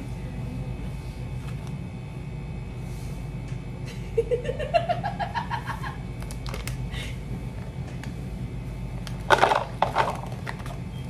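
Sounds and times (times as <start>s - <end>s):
steady low hum: 0.0s - 11.0s
woman's whimpering laugh: 3.9s - 6.0s.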